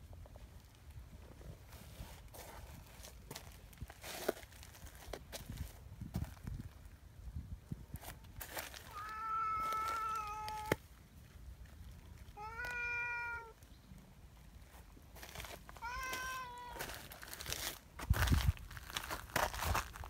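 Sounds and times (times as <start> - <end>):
cat meowing: 8.9 - 10.8, 12.3 - 13.6, 15.8 - 16.9.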